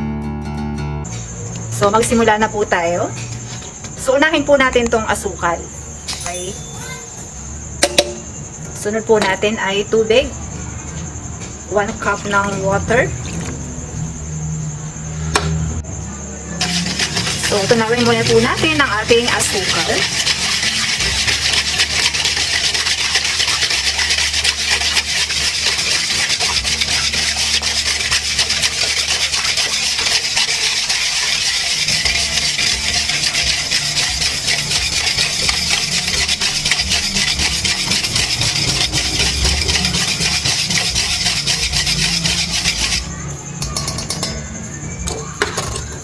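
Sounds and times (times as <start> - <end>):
wire whisk scraping metal bowl: 16.6 - 43.1.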